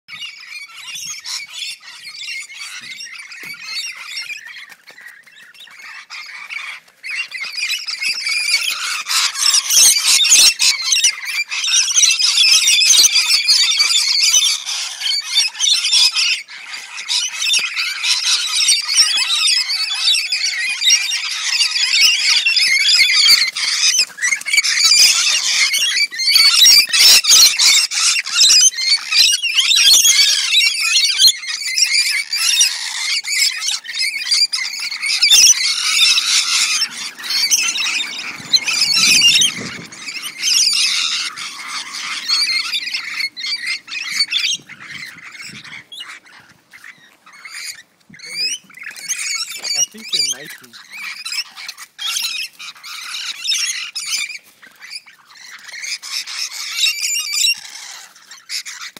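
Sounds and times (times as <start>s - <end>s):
parrots screeching and squawking: 0.1s - 58.9s.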